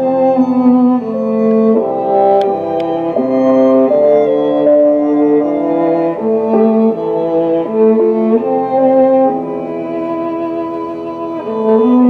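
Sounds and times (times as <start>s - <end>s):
slow bowed string music: 0.0s - 12.0s.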